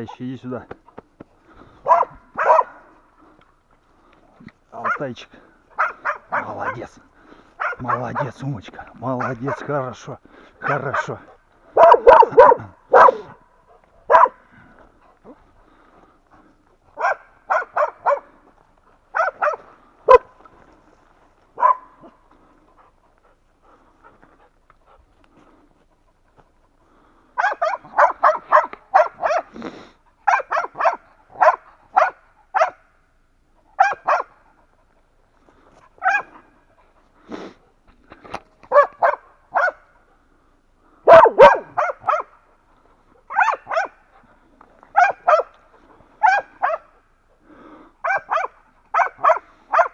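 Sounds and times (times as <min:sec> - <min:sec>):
dogs barking: 0:01.8 - 0:03.1, 0:04.7 - 0:07.0, 0:07.6 - 0:10.0, 0:10.6 - 0:14.5, 0:16.9 - 0:18.4, 0:19.1 - 0:20.4, 0:21.5 - 0:22.9, 0:27.4 - 0:29.6, 0:30.2 - 0:33.0, 0:33.6 - 0:34.7, 0:35.9 - 0:36.7, 0:38.6 - 0:40.1, 0:41.0 - 0:42.6, 0:43.2 - 0:44.2, 0:44.9 - 0:47.1, 0:48.0 - 0:49.9.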